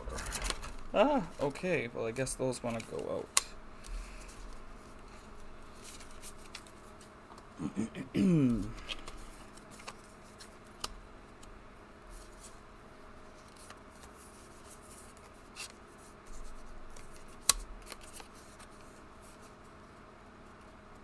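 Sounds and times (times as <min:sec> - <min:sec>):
paper and cards rustling: 0:00.0 - 0:07.2, 0:08.5 - 0:10.9, 0:13.3 - 0:19.7.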